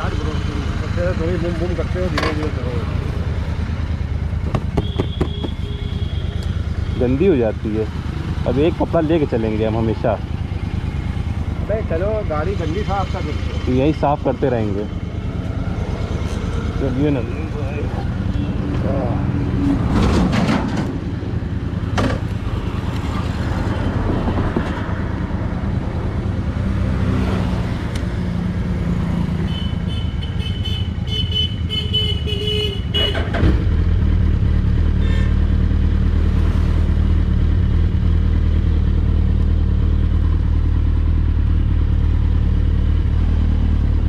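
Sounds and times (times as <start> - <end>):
motorcycle engines idling: 0.0 - 19.0, 36.8 - 44.0
vehicle horn: 4.7 - 7.1, 29.4 - 33.4, 35.0 - 35.4.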